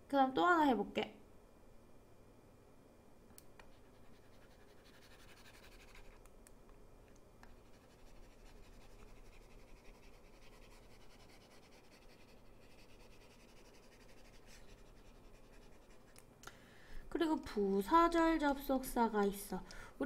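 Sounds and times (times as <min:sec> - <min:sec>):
stylus scratching and tapping tablet: 0:03.6 - 0:06.2, 0:07.4 - 0:16.2.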